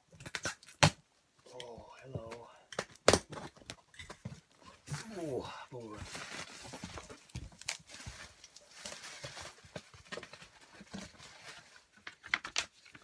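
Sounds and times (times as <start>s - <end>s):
paper rustling in cardboard box: 5.9s - 13.0s.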